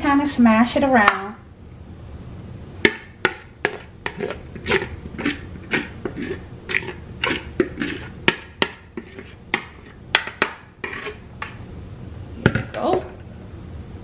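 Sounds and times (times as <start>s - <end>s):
spatula knocking on mixing bowl: 2.8s - 4.2s, 7.6s - 10.7s.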